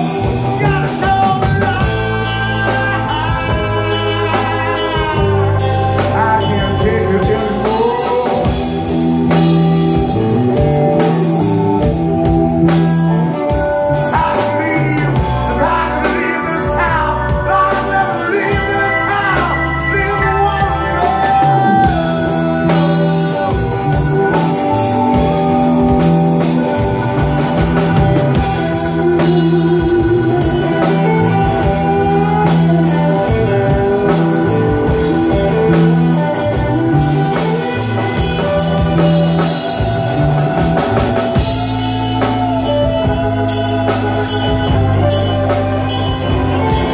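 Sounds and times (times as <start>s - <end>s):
person singing: 0.0s - 10.0s, 13.2s - 26.4s
bass guitar: 0.0s - 46.9s
drum kit: 0.0s - 46.9s
electric guitar: 0.0s - 46.9s
keyboard: 0.0s - 46.9s.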